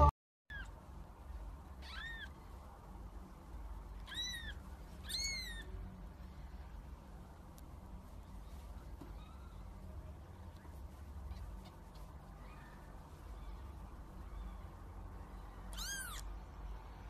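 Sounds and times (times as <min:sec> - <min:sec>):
faint low hum: 0:00.0 - 0:17.0
kitten mewing: 0:01.8 - 0:02.4, 0:04.0 - 0:05.7, 0:15.7 - 0:16.3.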